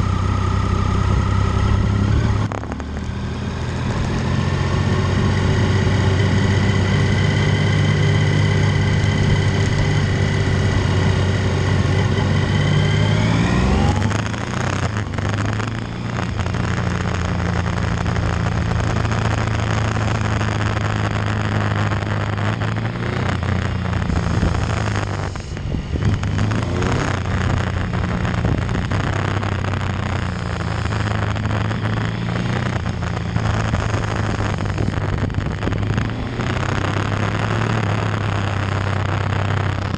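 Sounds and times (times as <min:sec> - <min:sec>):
motorcycle engine: 0:00.0 - 0:39.9
wind rush on microphone: 0:23.6 - 0:37.4.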